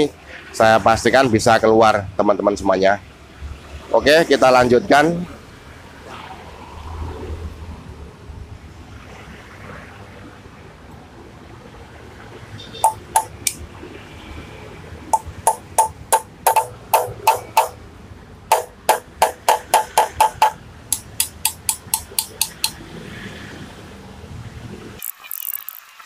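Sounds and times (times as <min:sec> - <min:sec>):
hammer striking metal punch: 0:12.8 - 0:13.6, 0:15.2 - 0:17.8, 0:18.5 - 0:22.8.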